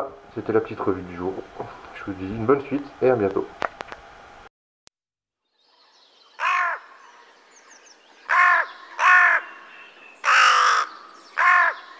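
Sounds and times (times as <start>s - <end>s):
crow cawing: 6.4s - 7.2s, 8.2s - 11.9s.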